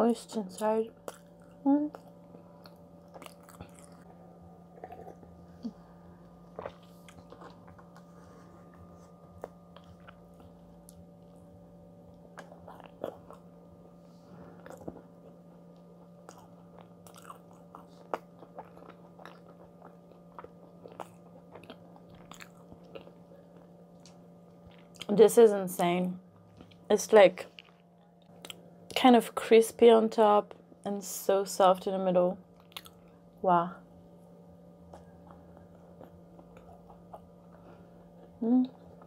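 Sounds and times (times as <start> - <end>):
faint steady hum: 0.0 - 39.0
chewing and mouth noises: 1.0 - 5.8, 6.5 - 11.0, 12.3 - 13.6, 14.5 - 25.2, 32.6 - 33.2, 34.9 - 39.0.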